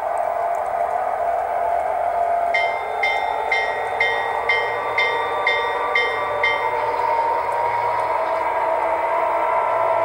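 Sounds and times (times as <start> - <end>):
locomotive bell ringing: 2.5 - 10.0.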